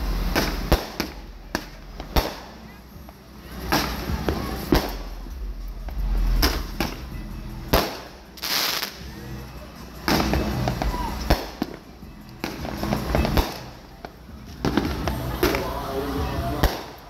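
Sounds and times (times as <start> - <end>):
fireworks hissing burst: 0.0 - 2.8, 7.7 - 9.2
fireworks bangs and crackling: 0.0 - 9.2, 10.0 - 17.0.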